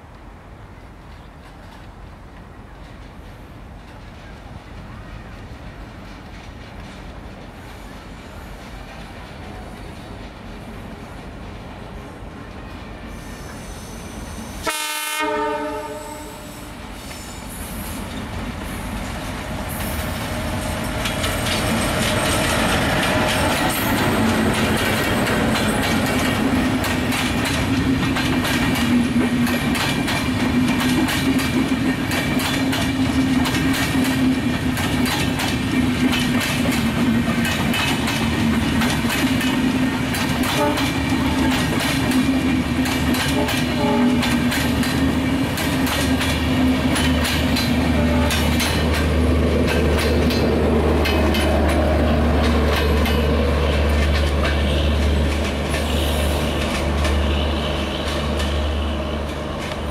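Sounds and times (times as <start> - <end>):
train rumble: 0.0 - 59.9
train wheels clicking over rail joints: 17.0 - 59.9.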